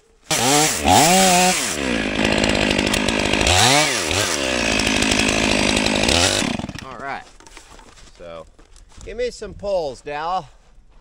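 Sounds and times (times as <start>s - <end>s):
chainsaw revving and cutting: 0.3s - 7.0s.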